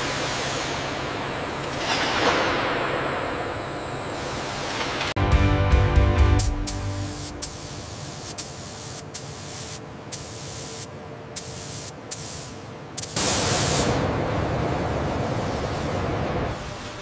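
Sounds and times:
paint spray gun hissing: 6.4 - 13.9.

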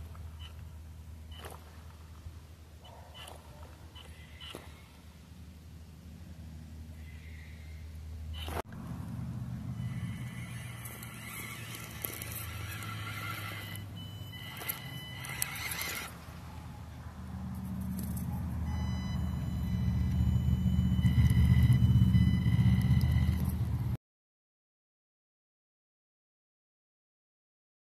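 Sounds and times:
small electric motor whining: 9.7 - 16.2, 19.2 - 23.7.

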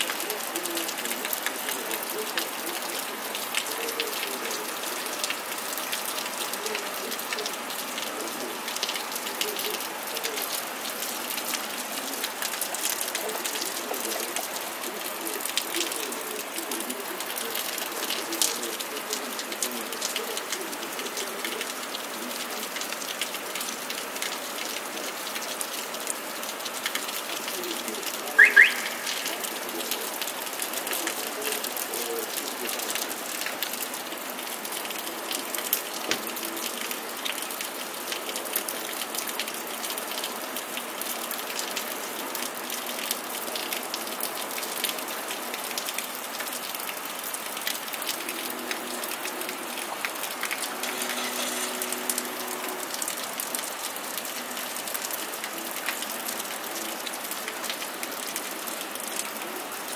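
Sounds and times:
steady rain hissing: 0.0 - 59.9
water drops ticking: 16.7 - 30.8
loud double chirp: 28.4 - 29.3.

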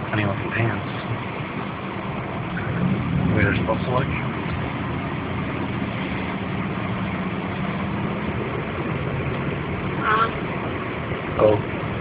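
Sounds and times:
car engine hum: 0.0 - 12.0
road hiss: 0.0 - 12.0.

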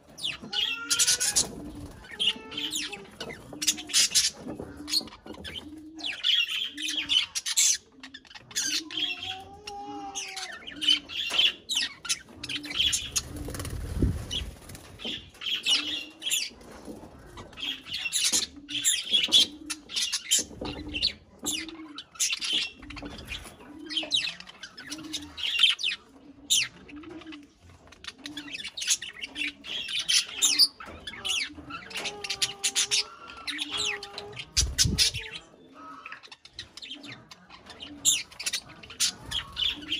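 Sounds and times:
wings fluttering: 12.3 - 15.8, 33.9 - 35.3
budgerigars chattering: 17.4 - 39.9.

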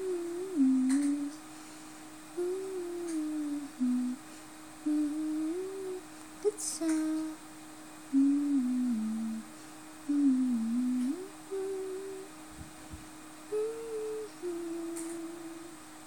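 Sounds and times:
person humming: 0.0 - 1.5, 2.3 - 4.2, 4.8 - 7.4, 8.1 - 12.4, 13.5 - 15.8
faint background tone: 0.0 - 16.0.

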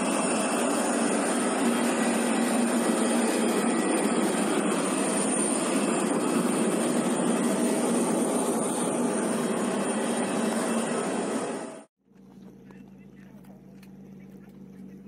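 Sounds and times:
jet turbines whining: 0.0 - 11.9.

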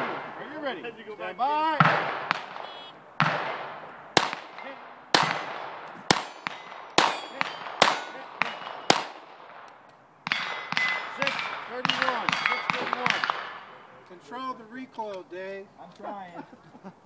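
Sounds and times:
handgun shots: 4.2 - 13.6
steel targets clanging: 6.1 - 9.0, 10.3 - 13.5.

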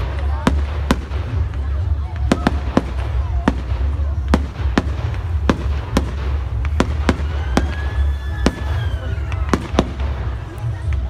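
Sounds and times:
fireworks bursting: 0.0 - 11.0
firework whistle: 6.6 - 10.0.

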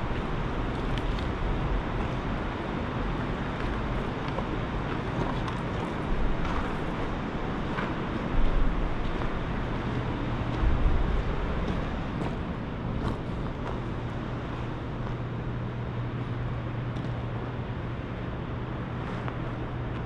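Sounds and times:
faint irregular clicks: 0.0 - 8.0
low rumbling background noise: 0.0 - 20.0.

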